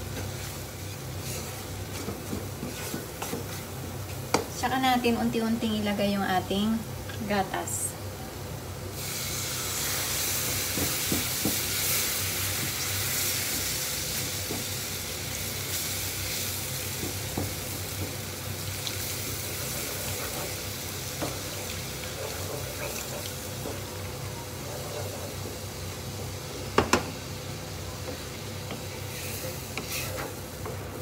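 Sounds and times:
roux sizzling in a frying pan: 0:00.0 - 0:04.6, 0:08.3 - 0:31.0
wooden spatula stirring in pan: 0:00.1 - 0:04.5, 0:16.9 - 0:25.7, 0:28.0 - 0:31.0.

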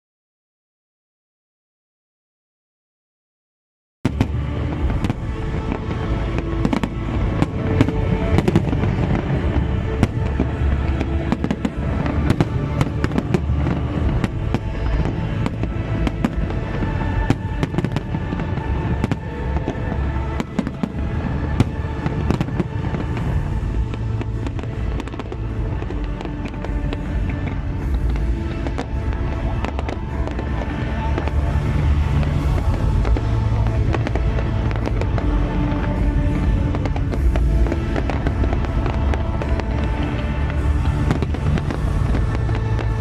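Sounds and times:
fireworks bangs and crackles: 0:04.0 - 0:43.0
music playing: 0:04.1 - 0:43.0.

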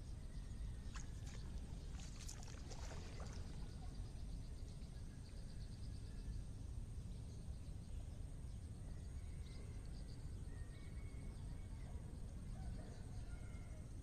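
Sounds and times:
steady low rumble: 0:00.0 - 0:10.5.

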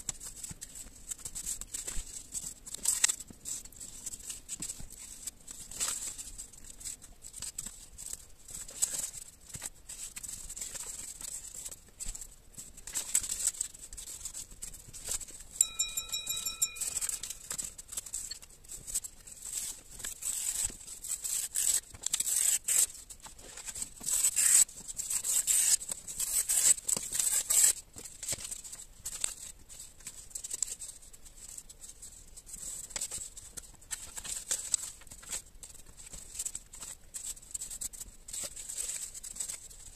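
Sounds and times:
paper rustling and tearing: 0:17.4 - 0:39.8.

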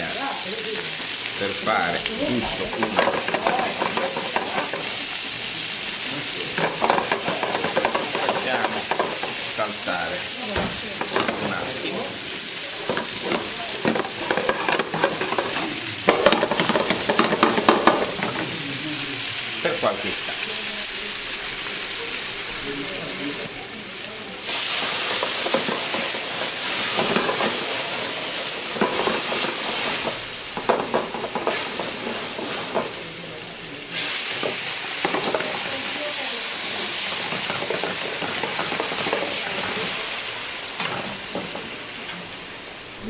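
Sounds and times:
vegetables sizzling in oil: 0:00.0 - 0:43.0.

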